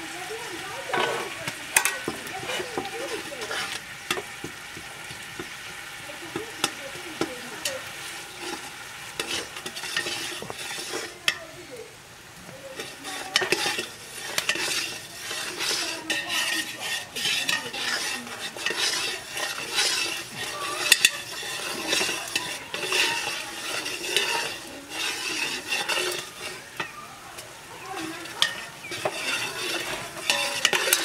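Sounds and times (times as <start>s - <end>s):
metal spoon scraping pot: 0.6s - 11.5s, 12.6s - 31.0s.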